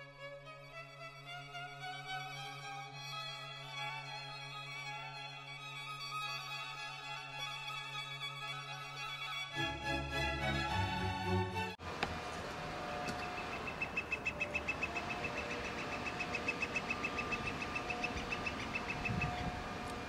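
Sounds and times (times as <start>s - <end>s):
bird call of repeated wick notes: 13.0s - 20.0s.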